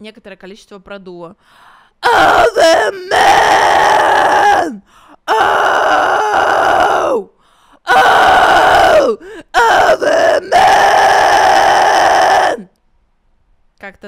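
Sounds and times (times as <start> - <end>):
woman screaming metal vocals: 2.0 - 7.3, 7.9 - 12.7.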